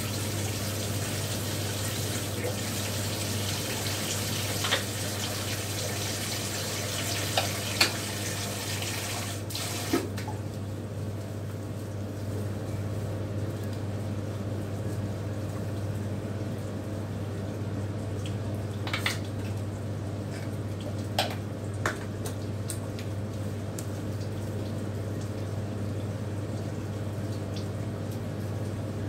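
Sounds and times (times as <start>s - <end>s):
water trickling and dripping: 20.8s - 28.8s.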